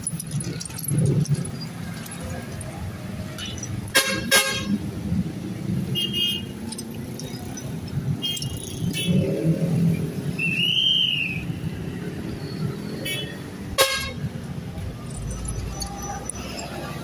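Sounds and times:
passing vehicle engines: 0.0s - 17.0s.

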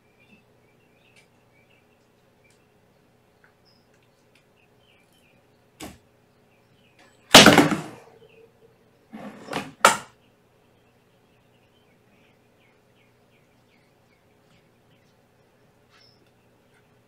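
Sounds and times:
tripod crashing on wooden floor: 7.3s - 8.0s.

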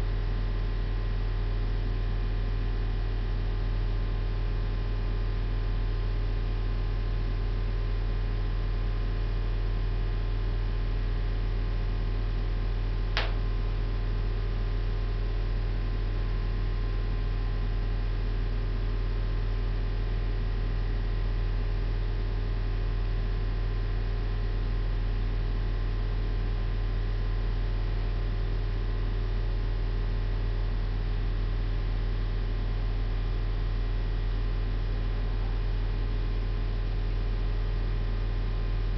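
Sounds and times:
low electrical mains hum: 0.0s - 38.9s
short click: 13.2s - 13.4s.

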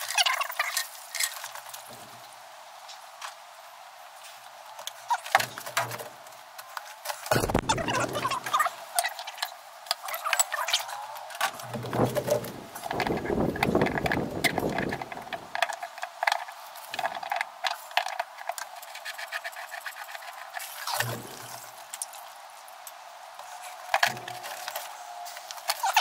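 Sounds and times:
hands working at plastic filter: 11.4s - 22.2s.

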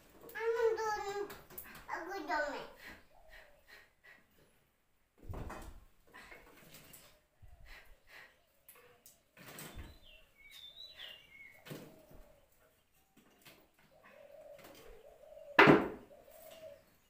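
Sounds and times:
bird chirps: 9.6s - 13.2s.

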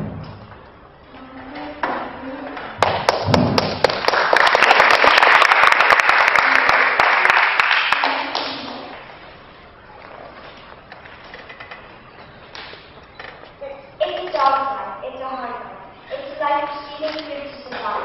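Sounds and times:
audience applauding: 2.8s - 8.9s.

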